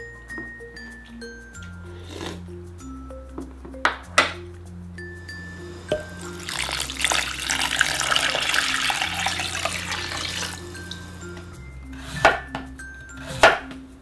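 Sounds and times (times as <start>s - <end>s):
background music: 0.0s - 14.0s
water pouring into glass bowl: 5.3s - 11.4s.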